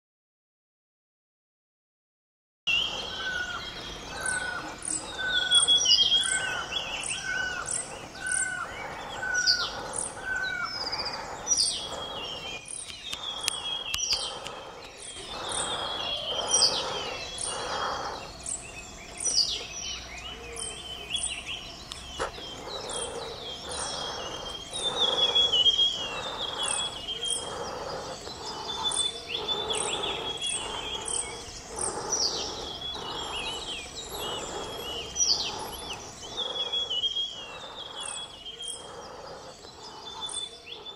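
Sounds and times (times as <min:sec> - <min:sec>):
wild birds singing and calling: 0:02.7 - 0:40.9
low repeating bird note: 0:20.2 - 0:40.9.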